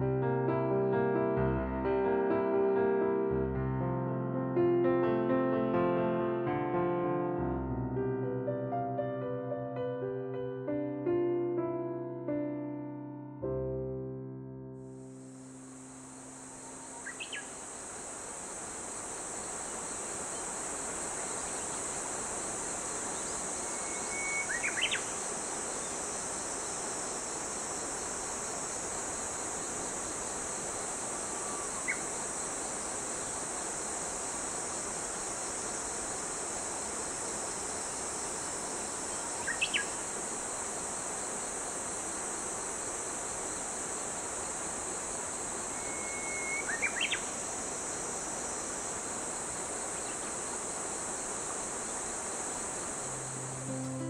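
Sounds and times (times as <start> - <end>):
high-pitched insect chorus: 14.8 - 54.0.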